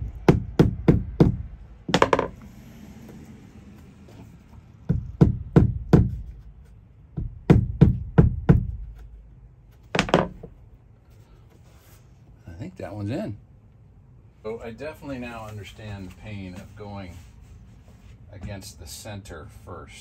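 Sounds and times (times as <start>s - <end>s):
mallet tapping floor plank: 0.3s - 2.4s.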